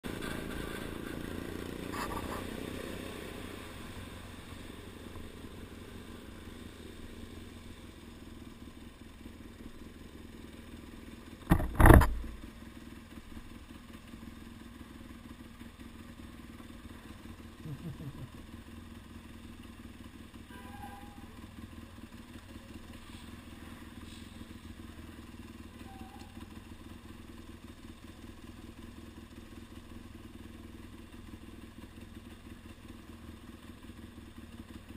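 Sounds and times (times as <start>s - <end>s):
motorcycle engine: 0.0s - 34.9s
sharp double knock: 11.5s - 12.3s.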